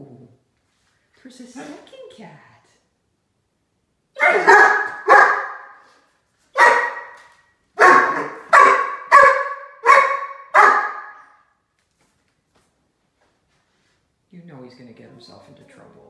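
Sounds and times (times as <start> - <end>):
puppy barking loudly: 4.2 - 5.9, 6.6 - 11.4.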